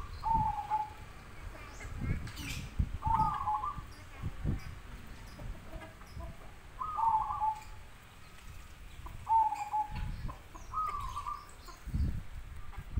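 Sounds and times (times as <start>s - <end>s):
dove cooing: 0.0s - 1.0s, 3.0s - 3.9s, 6.8s - 7.8s, 9.2s - 11.5s.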